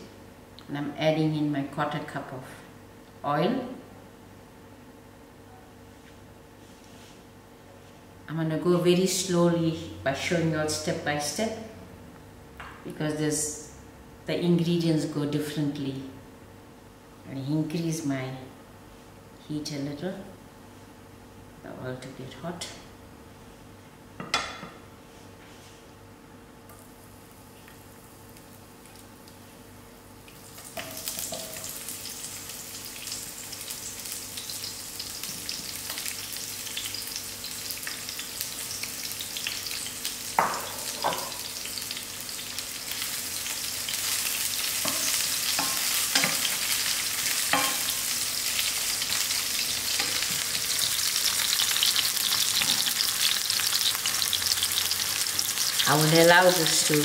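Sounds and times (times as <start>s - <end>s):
onion sizzling in hot oil: 30.3s - 57.0s.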